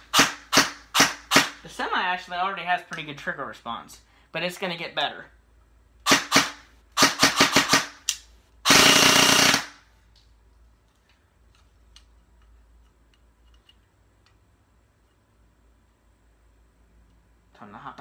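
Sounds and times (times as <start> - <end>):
airsoft gun firing: 0.1 - 1.6, 6.0 - 9.8.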